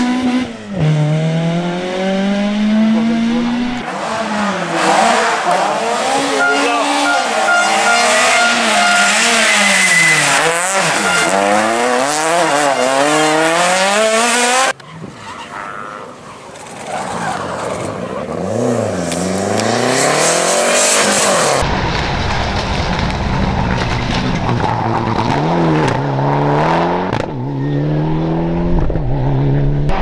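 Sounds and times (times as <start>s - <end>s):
deep turbocharged engine: 0.0s - 14.8s, 18.0s - 30.0s
rally car engine revving: 0.0s - 14.8s, 16.6s - 30.0s.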